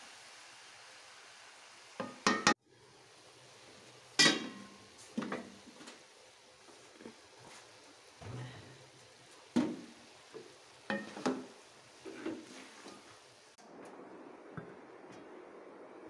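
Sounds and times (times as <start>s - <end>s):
faint sizzle: 0.0s - 16.0s
spatula knocking metal pot: 10.9s - 11.5s.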